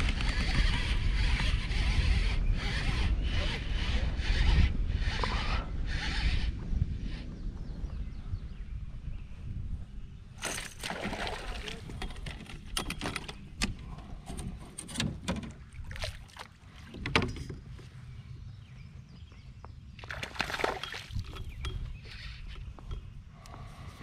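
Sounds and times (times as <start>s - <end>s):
fish splashing at water surface: 10.4s - 11.9s.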